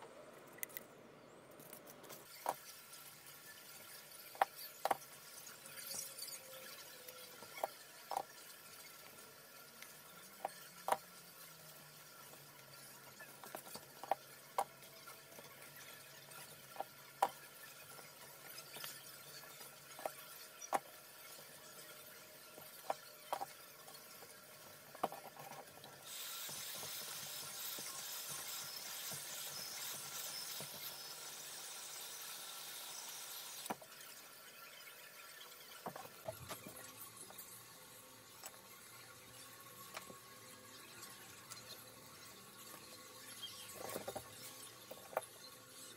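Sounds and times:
glue gun hissing: 26.0 - 33.8.

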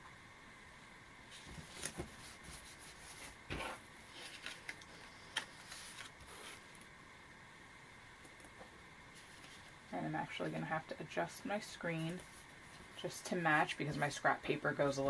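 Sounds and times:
paper rustles: 1.3 - 6.7.

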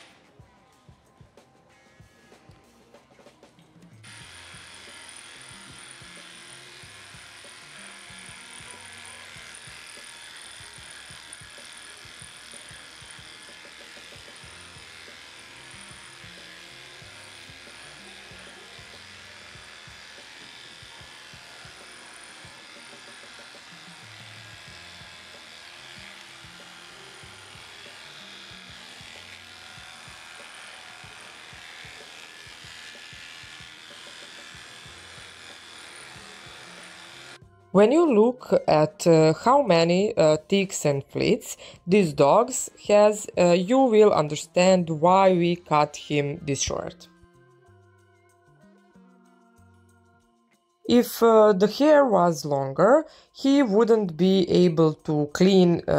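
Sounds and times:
electric clippers buzzing: 0.0 - 0.4, 3.8 - 47.1
background music with bass line: 46.9 - 50.8.

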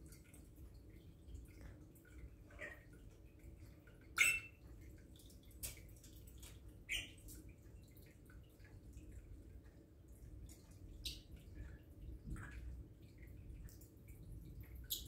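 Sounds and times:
parrot clicks and chirps: 4.2 - 4.5.

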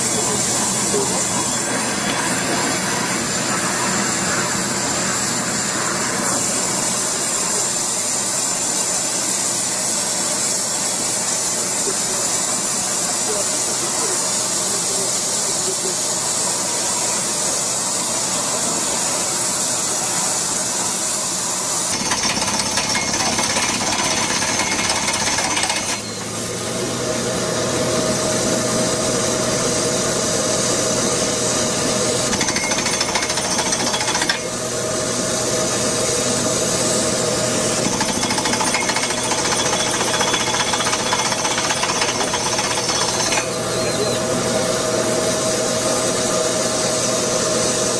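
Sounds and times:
drilling rig hammering: 21.9 - 26.2, 31.9 - 34.8, 37.3 - 43.9
steady machine hum: 22.0 - 47.9.

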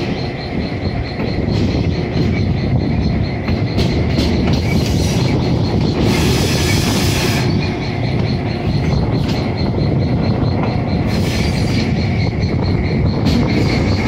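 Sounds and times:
diesel locomotive rumble: 0.0 - 14.0
hissing rush of noise: 4.7 - 7.8.

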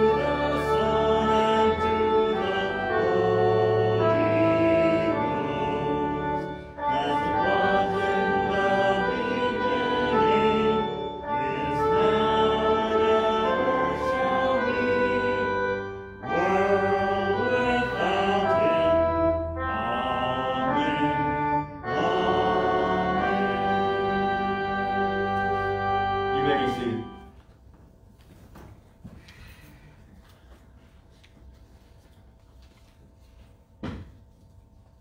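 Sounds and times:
voices singing slow church music: 0.0 - 27.4
instrumental accompaniment: 0.0 - 27.7.

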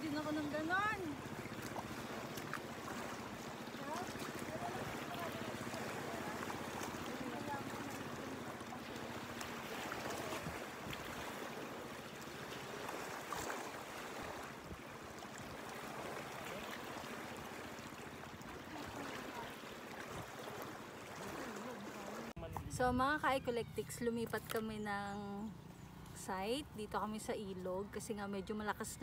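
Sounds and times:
waves slapping against rocks: 0.0 - 14.7
small water splashes: 0.0 - 22.8.

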